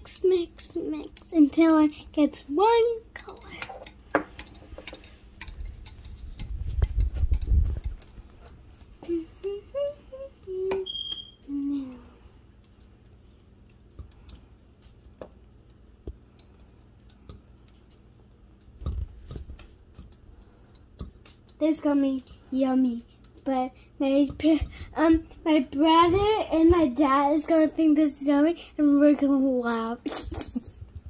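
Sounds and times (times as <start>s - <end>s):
spoon stirring thick sauce: 3.1s - 8.5s.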